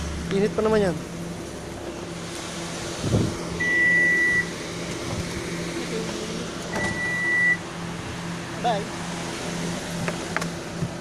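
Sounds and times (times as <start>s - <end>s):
engine idling hum: 0.0s - 11.0s
high electronic warning beeps: 3.6s - 4.5s, 6.7s - 7.6s.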